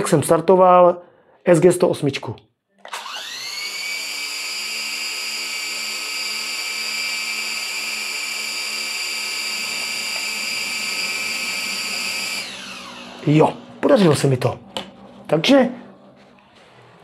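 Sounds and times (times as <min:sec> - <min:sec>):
quadcopter motors whining: 0:02.9 - 0:13.6.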